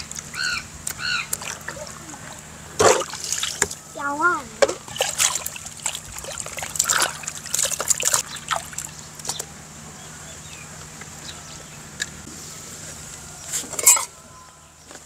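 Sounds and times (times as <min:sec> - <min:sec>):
water splashing and dripping: 0:00.0 - 0:03.8, 0:04.6 - 0:09.5.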